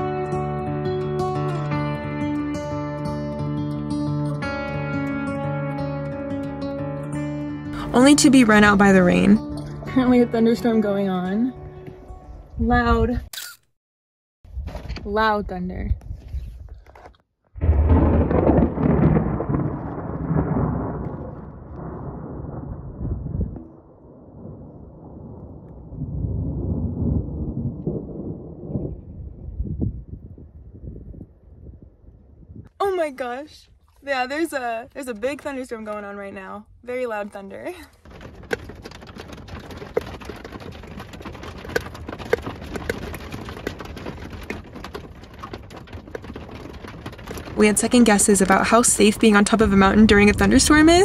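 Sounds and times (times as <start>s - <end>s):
thunder rumbling: 7.8s - 9.4s, 17.6s - 32.7s, 38.0s - 51.0s
rain drumming on a metal roof: 17.6s - 22.1s, 38.0s - 50.8s.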